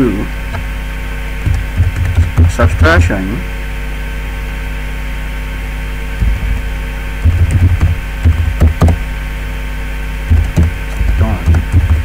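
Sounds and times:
electrical hum: 0:00.0 - 0:12.0
keyboard typing thumps: 0:01.4 - 0:03.0, 0:06.2 - 0:09.1, 0:10.3 - 0:12.0.

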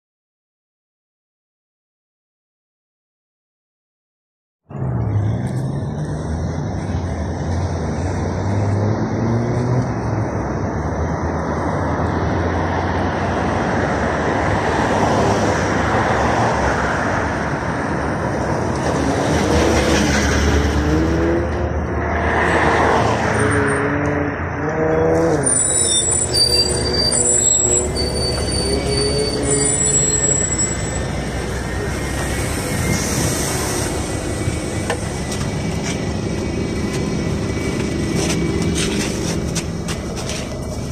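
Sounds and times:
road traffic passing: 0:04.7 - 0:40.9
high-pitched bus squeals: 0:24.8 - 0:40.8.

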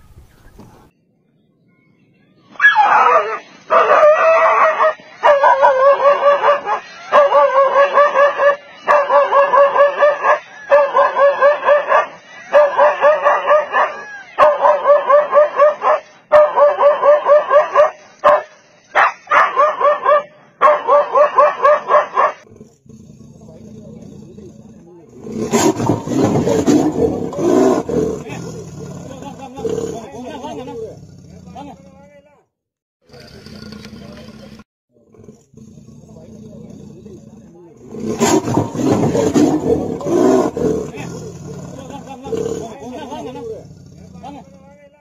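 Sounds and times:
dog barking rapidly: 0:02.6 - 0:22.4.

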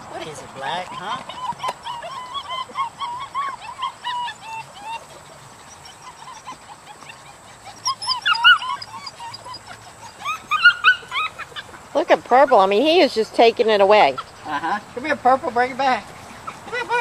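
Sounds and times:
puppies whining and yipping: 0:00.2 - 0:17.0.

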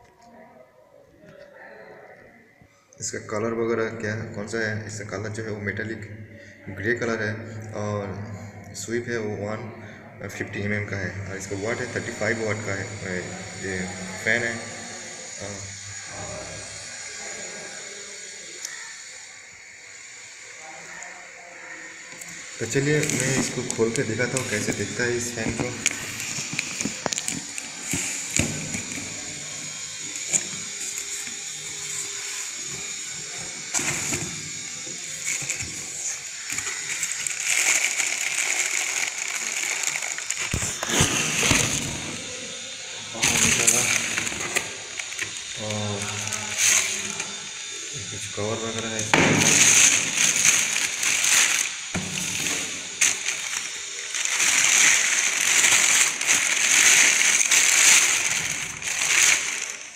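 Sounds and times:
plastic bag crinkling: 0:22.1 - 0:42.4, 0:43.2 - 0:47.5, 0:48.8 - 0:59.9
cardboard rustling and scraping: 0:22.6 - 0:29.5, 0:33.7 - 0:34.4, 0:35.2 - 0:42.2, 0:49.1 - 0:59.9.

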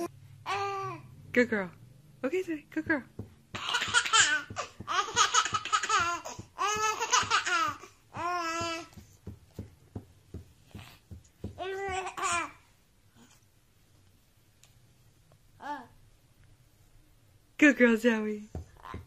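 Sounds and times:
baby laughing: 0:03.5 - 0:08.9.

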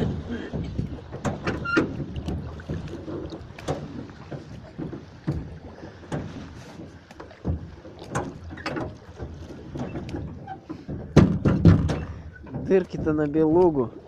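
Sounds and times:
water lapping against boat: 0:00.0 - 0:14.0
sharp knocks: 0:10.9 - 0:13.2.

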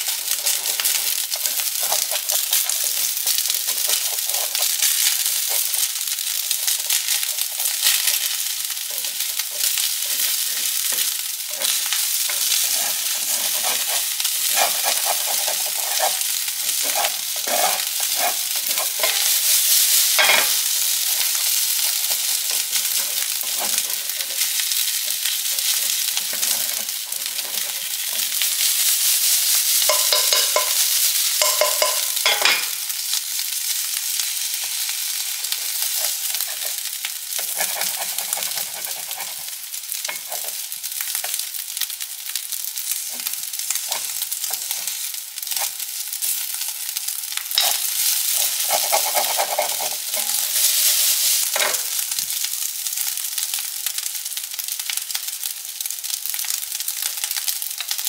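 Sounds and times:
rice sizzling in frying pan: 0:00.0 - 0:58.0
spatula scraping pan: 0:00.1 - 0:32.8, 0:34.2 - 0:41.9, 0:42.8 - 0:46.8, 0:47.5 - 0:52.0.

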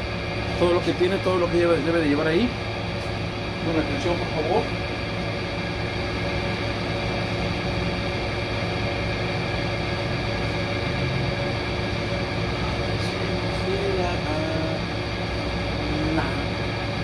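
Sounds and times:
workshop machine hum: 0:00.0 - 0:17.0.

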